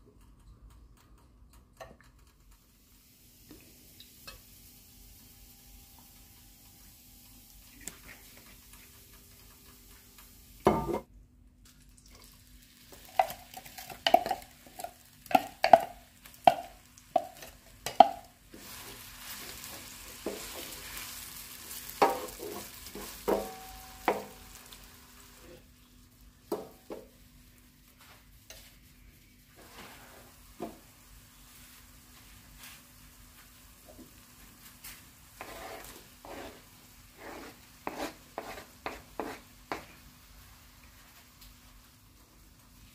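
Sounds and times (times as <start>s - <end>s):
onion sizzling in oil: 2.6s - 11.0s, 12.1s - 42.9s
utensil tapping on pan: 13.1s - 18.3s, 22.0s - 22.4s, 23.0s - 24.5s.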